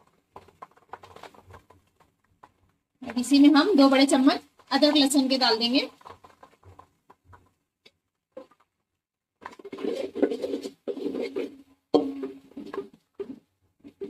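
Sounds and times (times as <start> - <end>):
metal ladle scraping a pot: 9.7 - 12.7.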